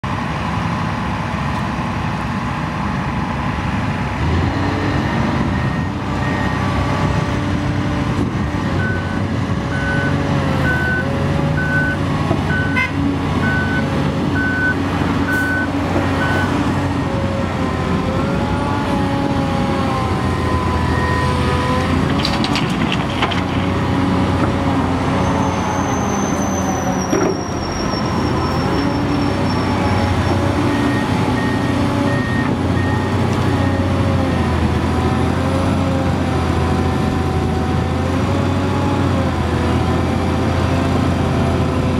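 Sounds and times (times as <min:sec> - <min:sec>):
heavy diesel engines working: 0:00.0 - 0:41.9
reversing alarm beeping: 0:05.5 - 0:06.9, 0:08.8 - 0:12.8, 0:13.4 - 0:16.6, 0:25.3 - 0:34.6.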